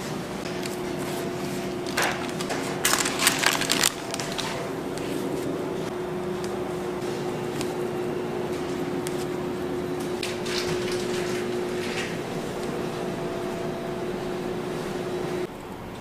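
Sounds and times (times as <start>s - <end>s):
kitchen machinery hum: 0.0s - 16.0s
cake pans rustling and clattering: 0.5s - 5.8s, 10.0s - 12.9s.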